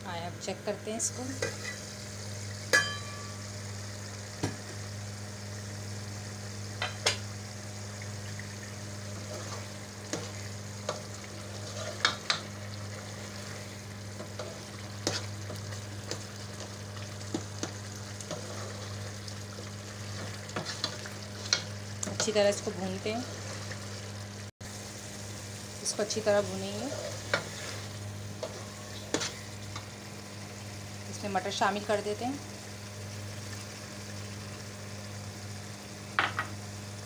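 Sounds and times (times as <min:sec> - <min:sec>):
gravy bubbling and sizzling: 0:00.1 - 0:37.0
spoon scraping a pot: 0:11.5 - 0:12.4, 0:20.1 - 0:22.3.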